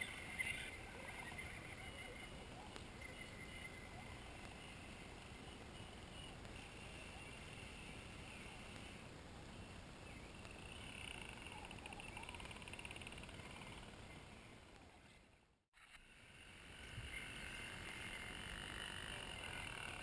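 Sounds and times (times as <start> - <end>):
chorus of animals trilling: 16.4 - 20.0.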